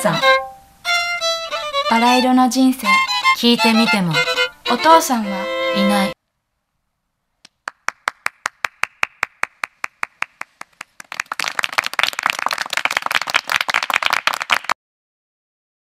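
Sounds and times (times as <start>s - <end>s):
person clapping: 7.4s - 14.8s
group applause: 7.5s - 14.8s.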